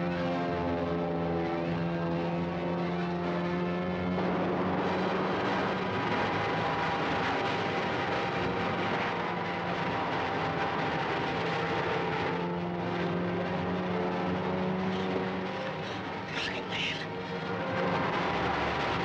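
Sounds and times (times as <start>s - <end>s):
aircraft engine drone: 0.1s - 19.0s
continuous rushing noise: 4.5s - 19.0s.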